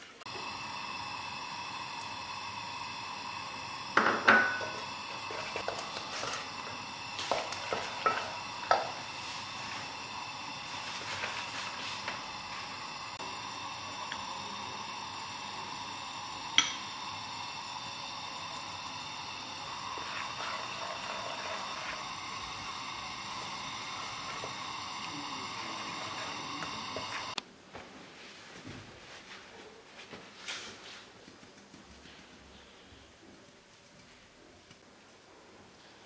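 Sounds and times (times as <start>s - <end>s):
steady hiss: 0.0s - 36.0s
wooden spoon stirring in a pot: 4.6s - 12.8s, 19.4s - 27.4s.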